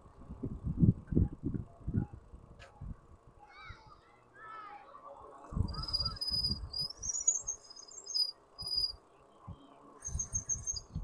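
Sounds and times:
wind rumbling on microphone: 0:00.0 - 0:03.4, 0:05.3 - 0:11.0
bike brakes squealing: 0:05.6 - 0:08.9, 0:10.0 - 0:11.0.

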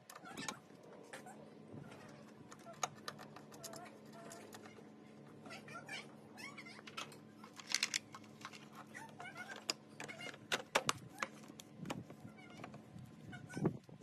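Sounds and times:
plastic clicks and scrapes: 0:06.9 - 0:12.8.

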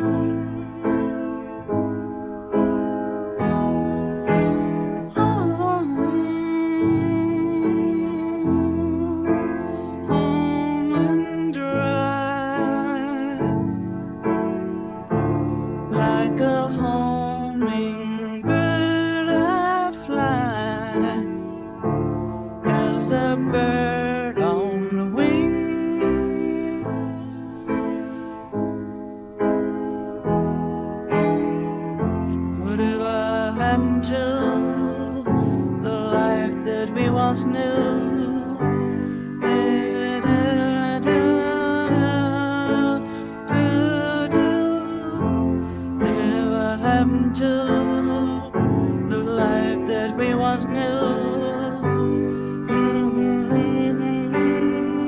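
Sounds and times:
person singing: 0:00.0 - 0:55.0
piano chords: 0:00.0 - 0:55.0.

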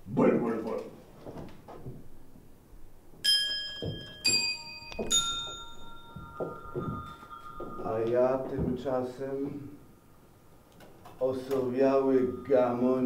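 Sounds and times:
soft knocks: 0:03.2 - 0:09.1
metallic bell-like chimes: 0:03.2 - 0:10.6, 0:11.2 - 0:13.0.

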